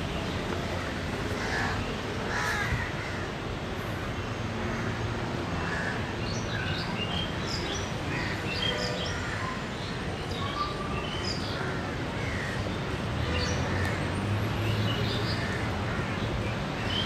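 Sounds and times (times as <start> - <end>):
low rumble of city traffic: 0.0 - 17.0
crows cawing: 1.4 - 3.3.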